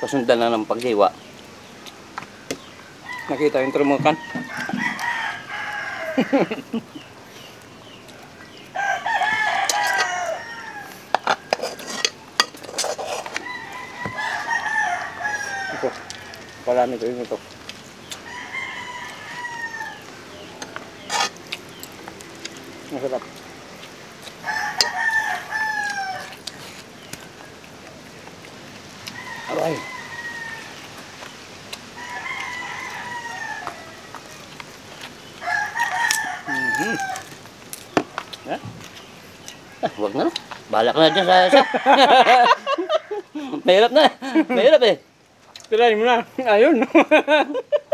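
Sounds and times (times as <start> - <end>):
rooster crowing: 0.0 - 0.6, 2.8 - 6.9, 8.2 - 12.3, 13.1 - 17.2, 18.2 - 21.4, 24.4 - 26.5, 29.0 - 31.1, 31.9 - 34.5, 35.4 - 37.4, 39.7 - 43.9.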